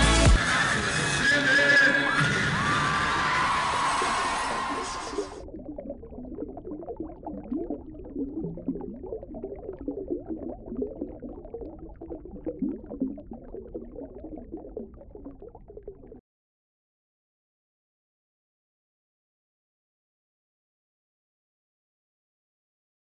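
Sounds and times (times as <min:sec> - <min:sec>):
underwater bubbling: 0:03.2 - 0:16.2.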